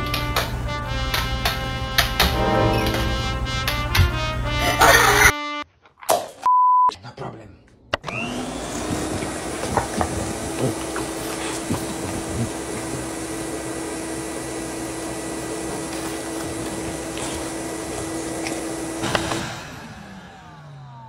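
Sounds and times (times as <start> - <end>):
appliance motor whining and humming: 8.0 - 21.0.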